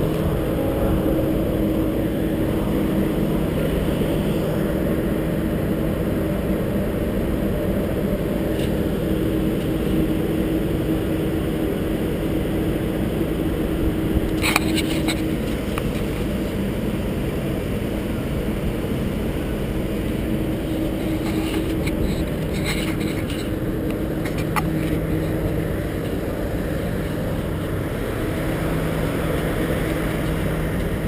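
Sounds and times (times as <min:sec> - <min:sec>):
droning hum: 0:00.0 - 0:31.0
low machinery rumble: 0:00.0 - 0:31.0.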